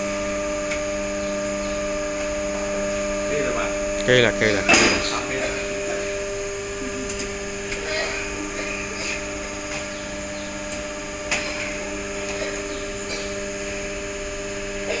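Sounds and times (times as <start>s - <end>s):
machine humming: 0.0s - 15.0s.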